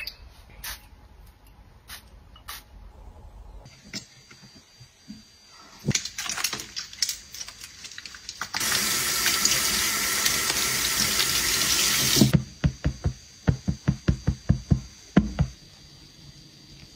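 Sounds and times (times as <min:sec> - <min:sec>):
tap water running into basin: 0:06.0 - 0:12.3.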